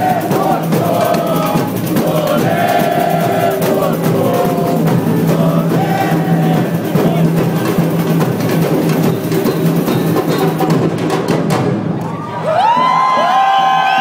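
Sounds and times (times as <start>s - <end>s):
crowd chanting in unison: 0.0s - 7.8s
samba drums playing fast: 0.0s - 12.0s.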